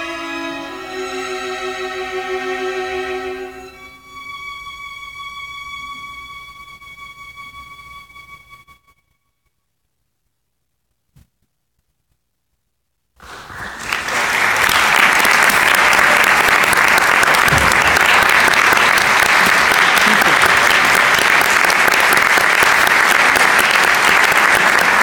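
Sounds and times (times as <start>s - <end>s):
audience applause: 13.2s - 25.0s.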